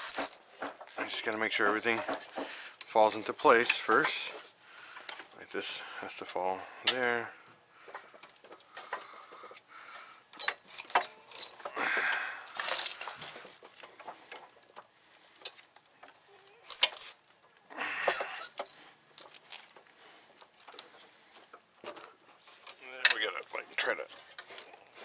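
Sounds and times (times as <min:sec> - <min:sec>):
metal tools clinking and jangling: 0:00.0 - 0:03.0, 0:12.5 - 0:13.4, 0:16.7 - 0:19.8.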